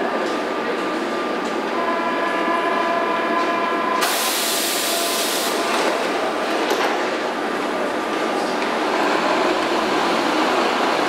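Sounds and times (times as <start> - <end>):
train electrical whine: 1.4 - 11.0
compressed air hiss: 4.0 - 5.7.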